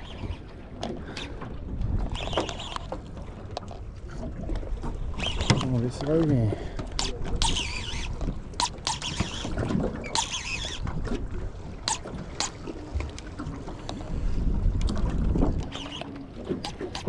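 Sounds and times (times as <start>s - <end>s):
wind on microphone: 0.0s - 3.3s, 4.0s - 17.0s
reel clicks: 0.0s - 17.0s
water noise: 0.0s - 17.0s
fishing reel drag whining: 2.1s - 2.9s, 5.1s - 5.7s, 6.7s - 12.8s, 15.6s - 17.0s.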